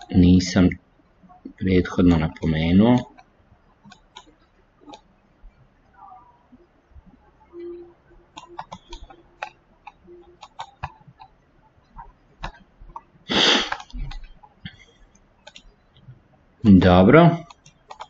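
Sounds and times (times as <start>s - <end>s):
computer mouse clicks: 3.0s - 5.1s, 8.3s - 16.2s, 17.4s - 18.0s.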